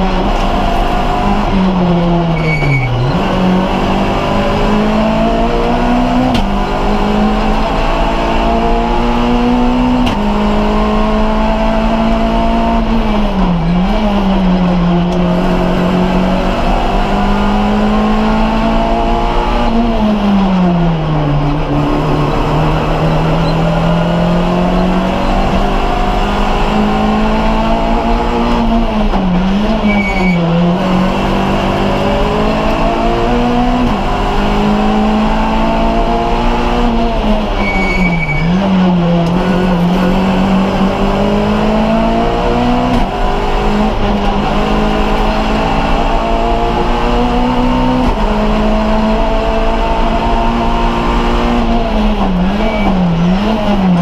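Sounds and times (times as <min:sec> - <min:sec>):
rally car engine revving through gears: 0:00.0 - 0:54.0.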